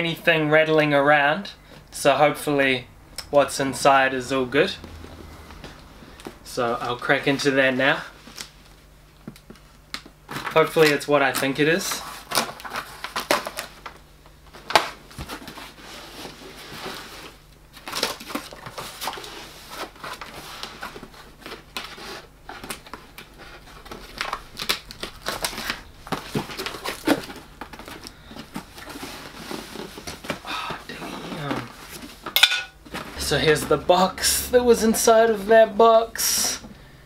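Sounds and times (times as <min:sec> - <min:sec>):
cardboard flaps scraping: 0:14.6 - 0:33.9.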